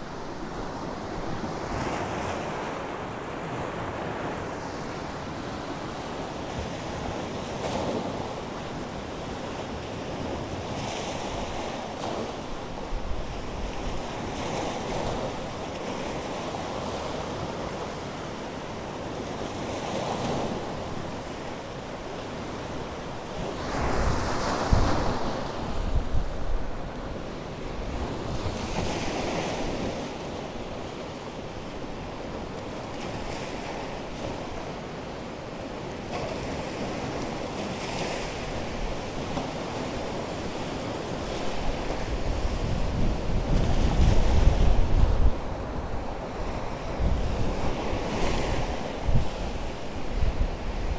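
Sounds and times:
wind buffeting microphone: 23.4s - 29.0s, 41.2s - 50.9s.

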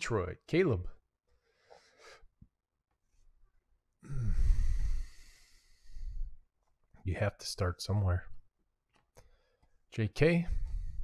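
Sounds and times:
soft breath: 1.3s - 2.4s, 4.0s - 6.4s, 9.2s - 9.8s, 10.4s - 11.0s
man sighing: 4.0s - 5.3s.

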